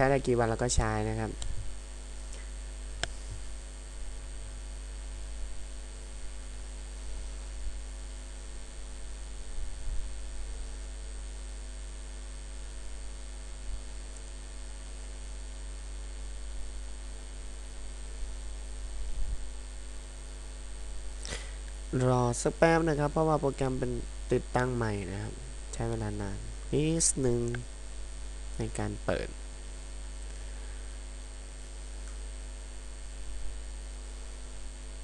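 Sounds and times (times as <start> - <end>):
electrical mains hum: 0.0 - 35.0
faint hiss: 21.2 - 29.4, 30.2 - 32.3.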